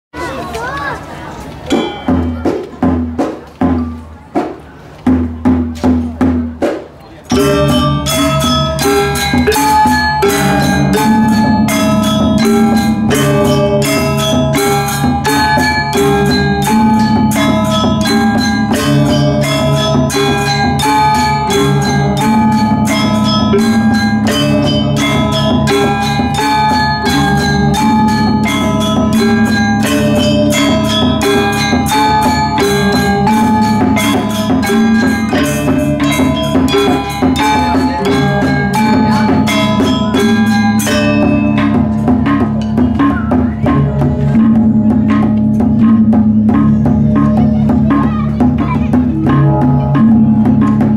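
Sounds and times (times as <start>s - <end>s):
metallophones struck with mallets: 1.6s - 50.9s
small cymbals clashing: 1.7s - 3.0s, 7.3s - 50.9s
sustained low bronze tones: 7.3s - 50.9s.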